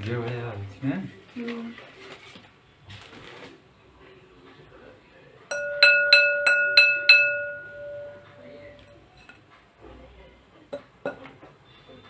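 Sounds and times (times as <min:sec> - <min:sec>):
packing paper rustling: 0:01.1 - 0:03.7
glass bowl tapped ringing: 0:05.5 - 0:09.0.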